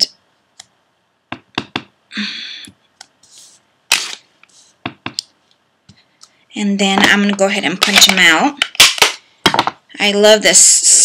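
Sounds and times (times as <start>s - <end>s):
stamp knock: 1.3s - 1.9s.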